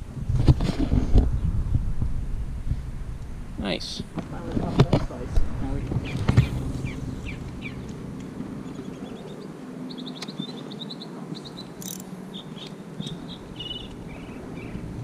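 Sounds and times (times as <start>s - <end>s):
low steady rumble: 0.0s - 10.2s, 12.0s - 15.0s
small animals chirping: 8.6s - 14.9s.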